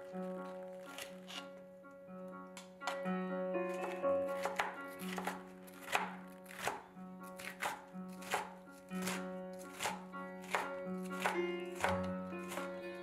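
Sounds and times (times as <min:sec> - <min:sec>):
soft background music: 0:00.0 - 0:13.0
knife slicing on cutting board: 0:00.8 - 0:01.5, 0:03.7 - 0:12.7.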